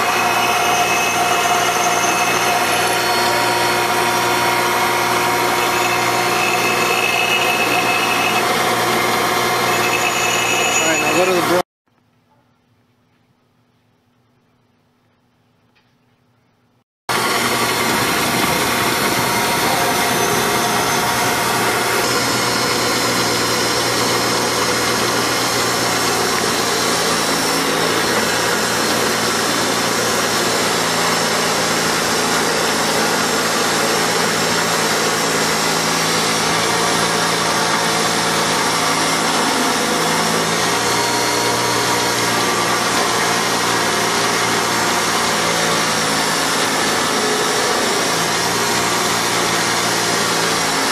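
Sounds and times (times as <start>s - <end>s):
steel grinding hiss: 0.0s - 8.6s
bench grinder motor hum: 0.0s - 11.6s, 17.1s - 50.9s.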